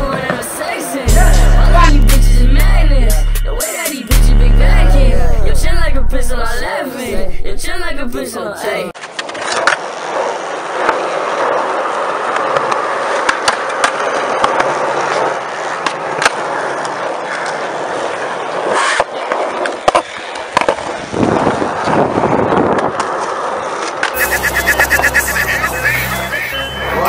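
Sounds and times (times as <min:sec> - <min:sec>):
skateboard clacks: 0:00.0 - 0:00.8, 0:09.0 - 0:25.2
skateboard wheels rolling on concrete: 0:00.0 - 0:01.6, 0:08.4 - 0:27.0.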